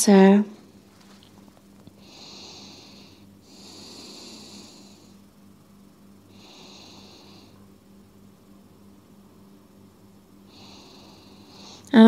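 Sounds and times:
faint steady hum: 0.0 - 12.0
person breathing slowly and deeply: 2.0 - 5.3, 6.3 - 7.7, 10.4 - 11.9.

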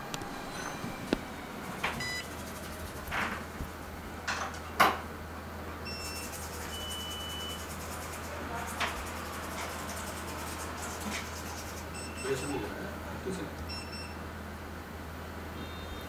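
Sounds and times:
steady low hum: 0.0 - 6.6
short high electronic beep: 2.0 - 2.3
metal stencil scraping and rustling: 6.2 - 12.0.

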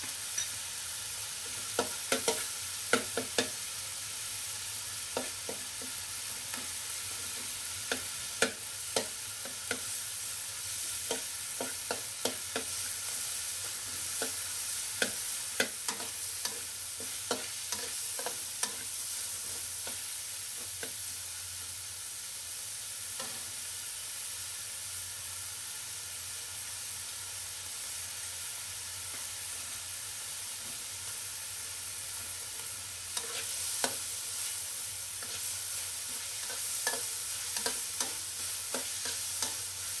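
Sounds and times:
meat sizzling in a wok: 0.0 - 40.0
metal spatula scraping and clacking: 15.0 - 18.9, 33.2 - 34.0, 35.2 - 39.7.

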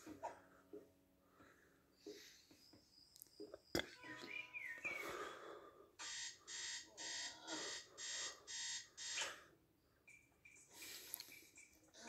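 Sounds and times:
cartoon alarm clock ringing: 6.0 - 9.3.

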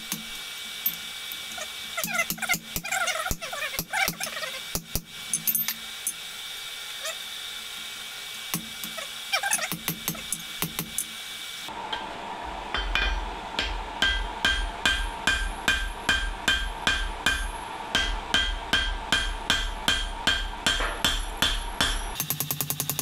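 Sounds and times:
steady low hum: 8.0 - 22.2
hammer striking steel on anvil: 12.7 - 23.0.

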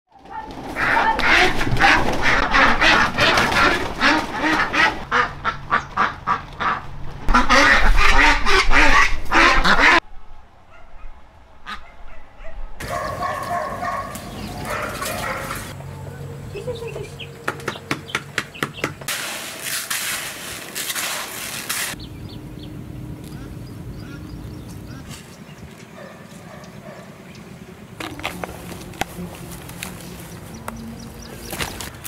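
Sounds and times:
flock of ducks quacking: 0.2 - 10.0, 22.2 - 27.4.

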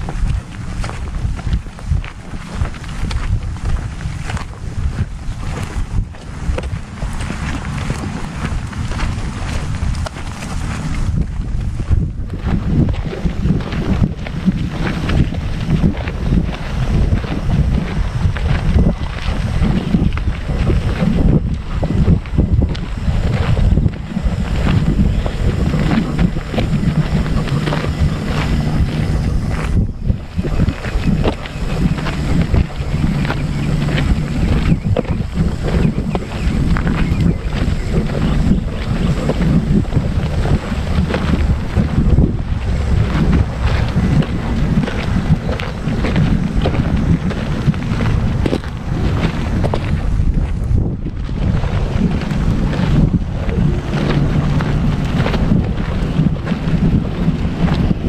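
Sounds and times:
dog paws scuffing on dirt: 0.0 - 58.0
wind buffeting microphone: 0.0 - 58.0.

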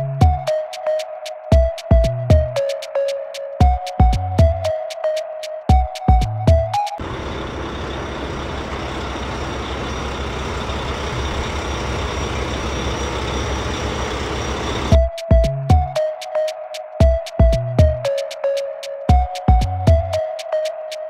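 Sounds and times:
heavy truck engine running: 7.0 - 15.0.

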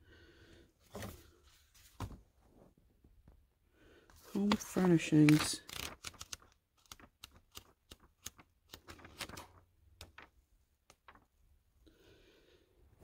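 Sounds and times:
book pages flipping: 4.2 - 11.3.

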